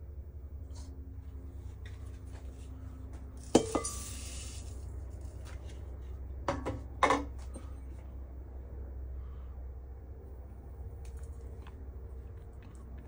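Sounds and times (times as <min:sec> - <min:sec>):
metal cup clinking on bowl: 0:03.4 - 0:04.1
crumbs pouring hiss: 0:03.4 - 0:05.6.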